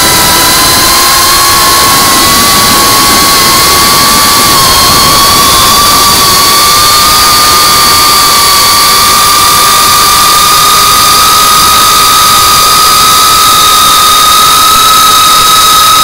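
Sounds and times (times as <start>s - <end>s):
rush of air: 0.0s - 12.4s
drone motors whining: 0.0s - 16.0s.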